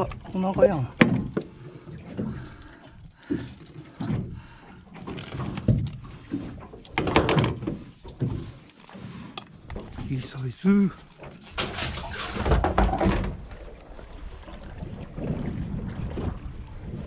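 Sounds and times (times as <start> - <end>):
knocks and thuds: 11.6 - 13.4.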